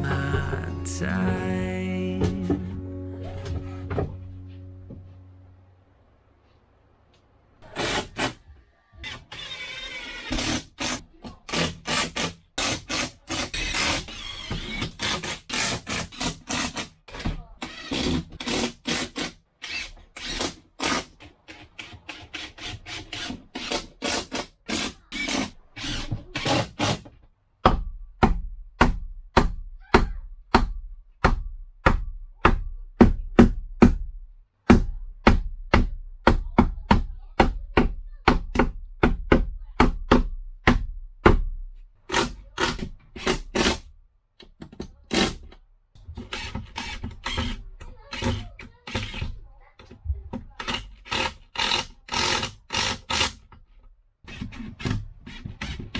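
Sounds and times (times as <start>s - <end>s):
hammer driving nails into wood: 34.7s - 45.6s, 50.6s - 53.6s.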